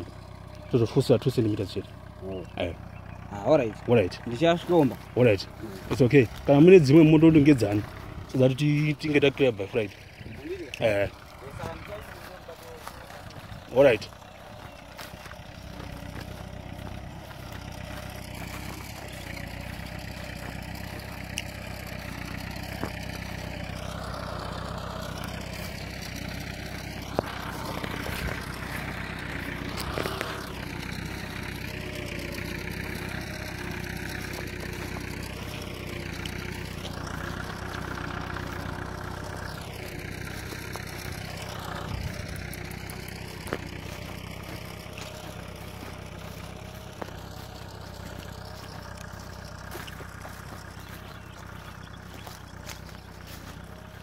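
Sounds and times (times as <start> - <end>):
tractor engine running: 0.0 - 54.0.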